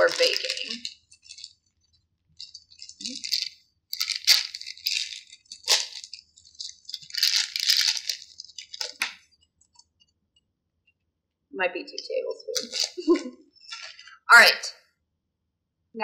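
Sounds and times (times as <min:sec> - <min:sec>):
plastic bag crinkling: 0:00.0 - 0:09.3, 0:12.5 - 0:14.1
sharp crackle: 0:00.0 - 0:09.8, 0:12.6 - 0:14.1.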